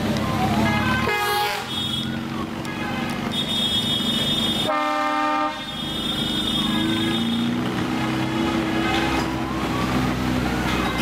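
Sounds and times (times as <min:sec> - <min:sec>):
motorcycle engines running: 0:00.0 - 0:11.0
vehicle horns blasting: 0:00.6 - 0:07.6, 0:08.4 - 0:09.3
high-pitched horn: 0:02.7 - 0:07.5.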